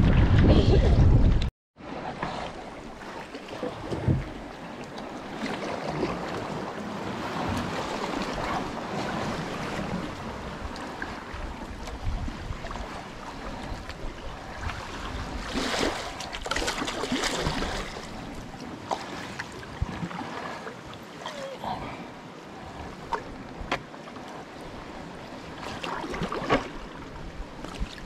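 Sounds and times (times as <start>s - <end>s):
wind rumble on microphone: 0.0s - 3.0s, 5.6s - 18.7s
water slapping against hull: 0.0s - 21.5s, 22.7s - 28.0s
paddle strokes splashing: 1.9s - 21.7s, 25.4s - 28.0s.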